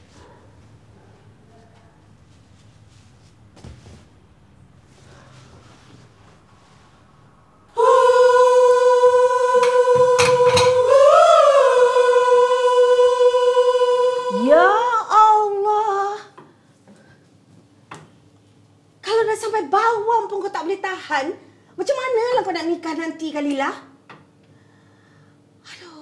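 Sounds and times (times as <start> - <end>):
person singing a held high note: 7.7 - 15.0
sharp knocks: 9.6 - 10.9.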